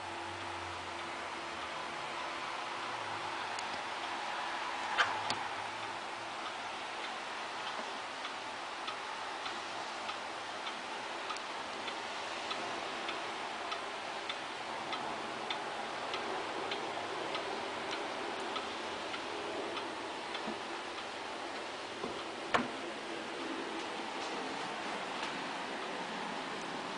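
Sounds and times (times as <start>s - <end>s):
wall clock ticking: 0.0s - 25.8s
steady hiss: 0.0s - 26.9s.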